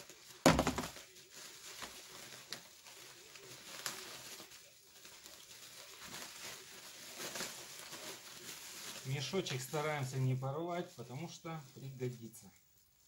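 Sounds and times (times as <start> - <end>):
plastic sack rustling and crinkling: 0.0 - 13.0.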